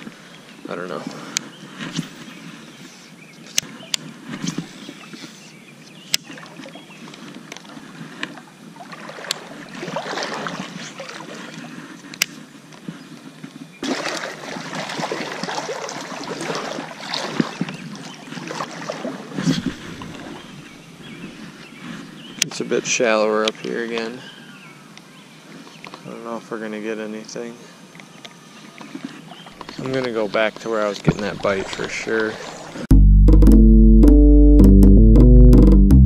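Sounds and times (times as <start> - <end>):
water sloshing around legs: 6.2 - 12.0, 13.8 - 21.8, 28.7 - 32.9.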